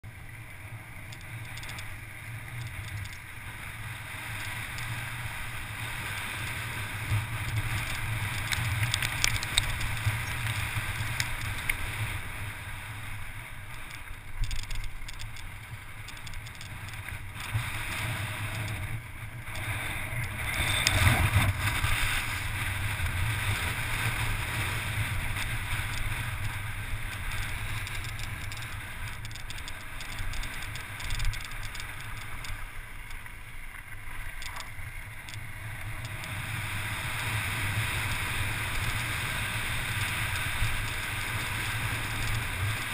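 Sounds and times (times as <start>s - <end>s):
bike clicks and rattles: 1.0s - 42.9s
wind rushing over microphone: 16.7s - 31.8s.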